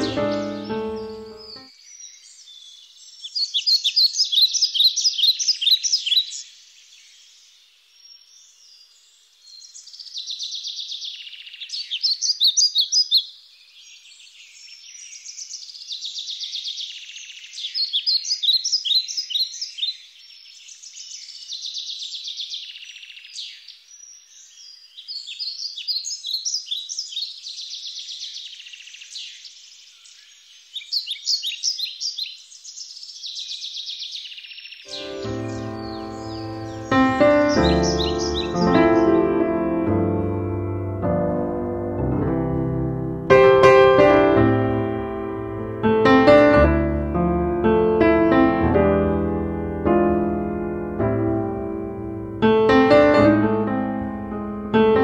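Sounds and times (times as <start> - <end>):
songbirds singing: 0.0 - 40.9
soft bird twittering: 14.2 - 39.2.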